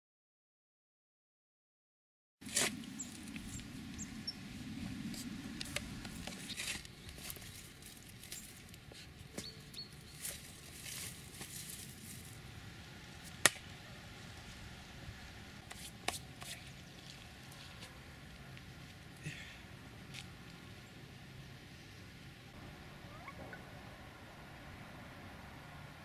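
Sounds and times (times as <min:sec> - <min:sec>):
spade digging into soil: 0:02.4 - 0:02.8.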